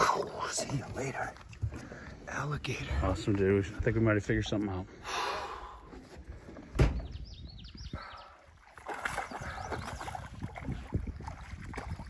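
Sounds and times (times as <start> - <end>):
water sloshing: 8.0 - 12.0.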